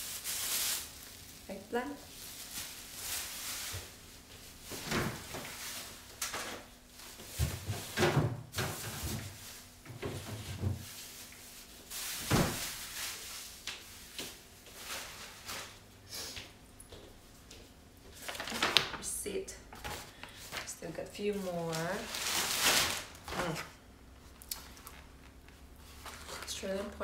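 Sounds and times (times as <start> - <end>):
rustling of produce: 0.0 - 16.4, 18.0 - 19.2, 19.8 - 27.0
refrigerator door opening and closing: 4.7 - 5.6, 7.4 - 10.8.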